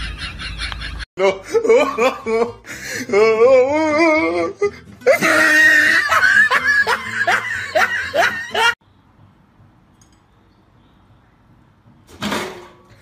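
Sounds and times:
person laughing hard: 0:00.0 - 0:08.8.

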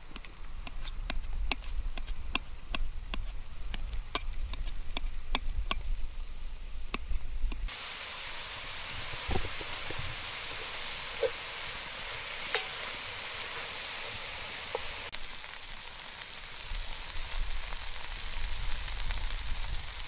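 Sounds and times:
food sizzling in a pot: 0:07.7 - 0:20.0.

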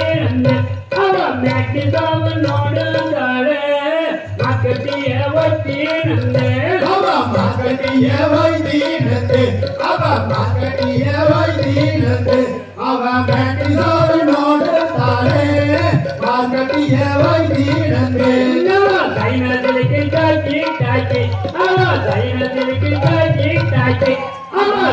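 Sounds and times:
hand drum beat: 0:00.0 - 0:03.3, 0:04.3 - 0:24.9.

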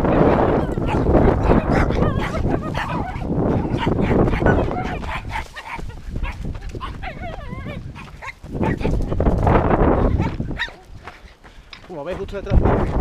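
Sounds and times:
dog barking and whining: 0:00.0 - 0:09.2, 0:10.1 - 0:10.9.

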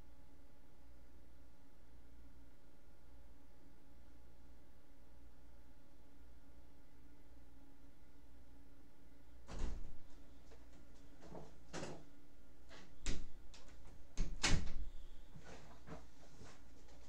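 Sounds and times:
knocks and bumps: 0:09.5 - 0:12.1.

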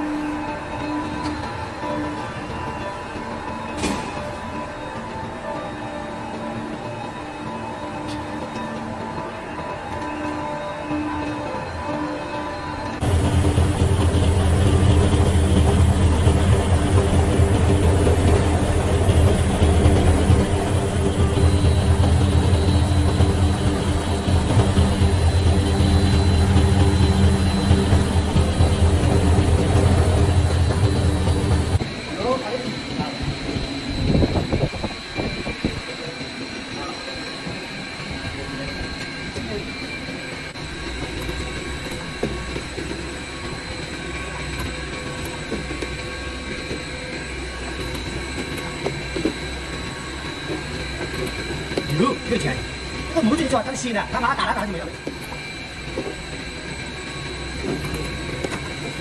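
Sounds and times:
faint high whine: 0:00.0 - 0:59.0
electric motor hum: 0:13.0 - 0:59.0.

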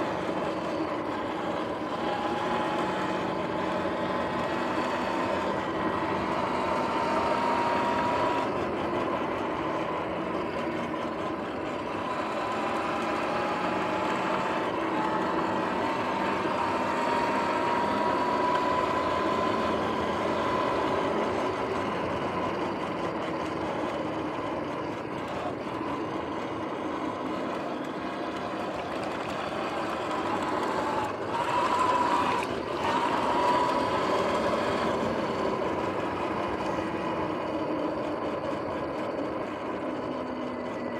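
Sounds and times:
electric motor whine: 0:00.0 - 0:40.9.

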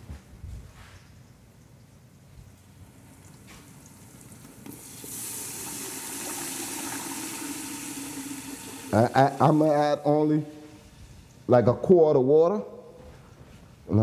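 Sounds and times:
water pouring into a pot: 0:03.2 - 0:11.5.

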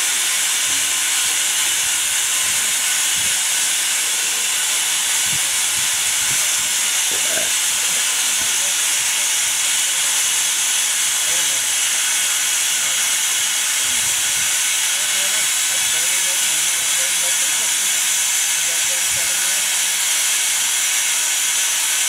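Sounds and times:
loud steady hiss: 0:00.0 - 0:22.0
faint murmurs: 0:06.3 - 0:09.3.

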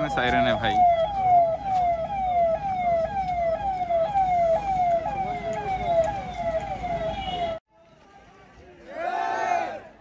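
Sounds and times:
vehicle siren: 0:00.0 - 0:07.6
low traffic rumble: 0:00.0 - 0:10.0.

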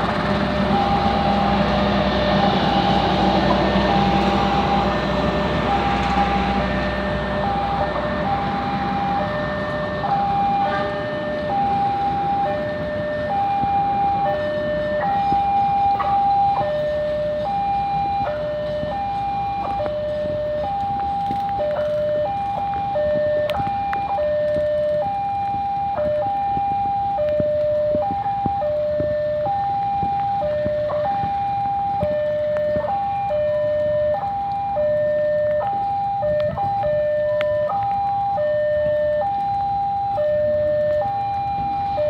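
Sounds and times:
level crossing alarm two-tone: 0:21.5 - 0:42.0.

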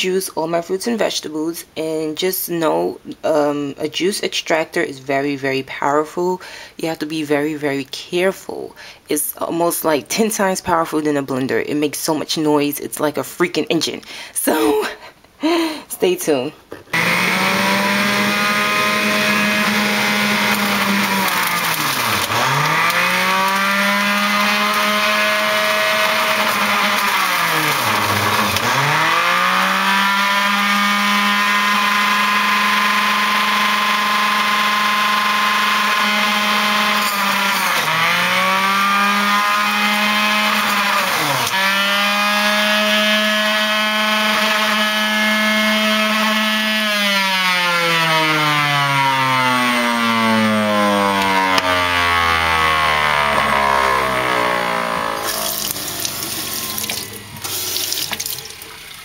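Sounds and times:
juicer motor whine: 0:17.0 - 0:59.0.

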